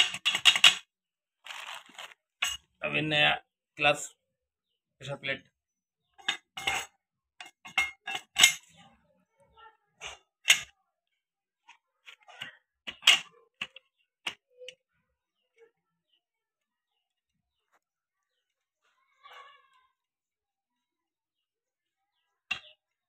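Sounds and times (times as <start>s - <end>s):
metal parts clinking and knocking: 0.0s - 0.8s, 1.5s - 2.7s, 6.2s - 8.7s.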